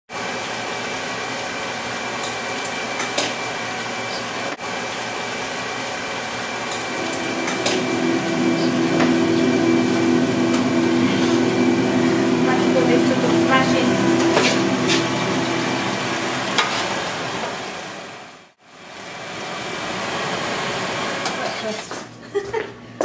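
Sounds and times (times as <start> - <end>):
steady mechanical hum: 0.3 - 23.0
lower stronger hum: 6.7 - 18.1.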